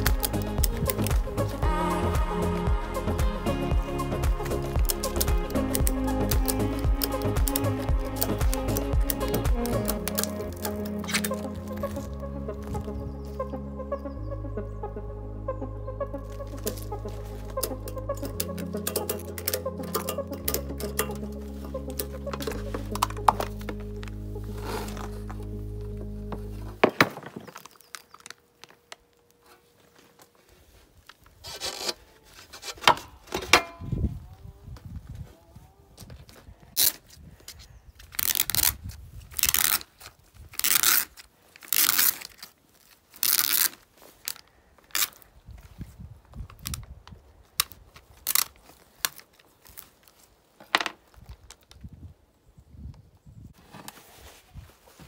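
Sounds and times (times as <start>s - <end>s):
sharp snaps: 0.0s - 11.4s
scraper scraping battery cells: 4.5s - 12.0s, 31.4s - 32.9s.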